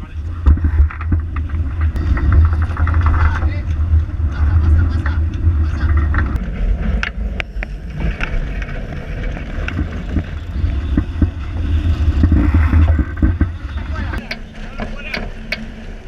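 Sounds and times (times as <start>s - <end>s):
wind buffeting microphone: 0.0s - 16.0s
water rushing along hull: 7.9s - 16.0s.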